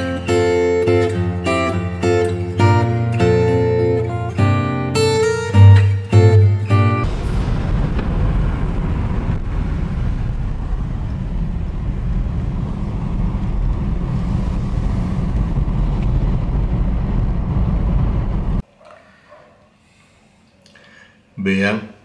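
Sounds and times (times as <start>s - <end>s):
car engine and road rumble: 7.1s - 18.6s.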